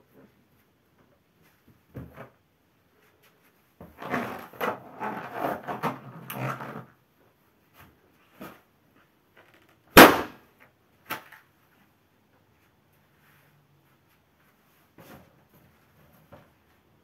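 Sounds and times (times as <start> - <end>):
balloon bursting: 9.9 - 10.4.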